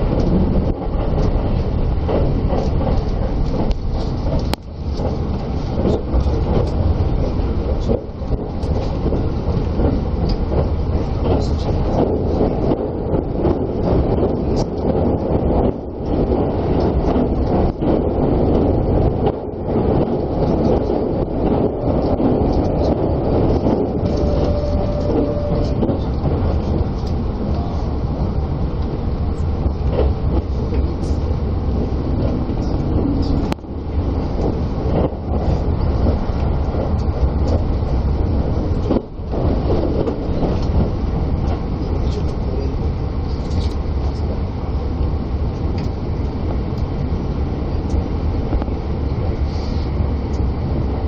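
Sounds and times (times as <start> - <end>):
train wheels rumbling on rail: 0.0 - 51.0.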